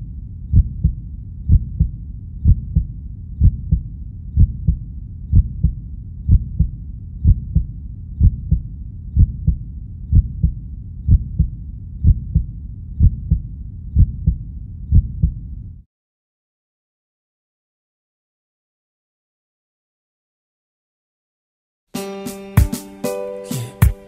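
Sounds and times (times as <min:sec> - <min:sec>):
heartbeat thumps: 0:00.0 - 0:15.6.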